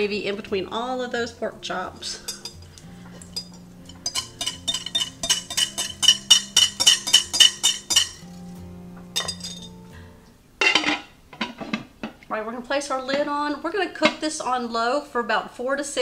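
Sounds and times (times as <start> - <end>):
background music: 0.0 - 15.6
utensil clinking on glass bowl: 1.8 - 8.6, 9.2 - 9.8.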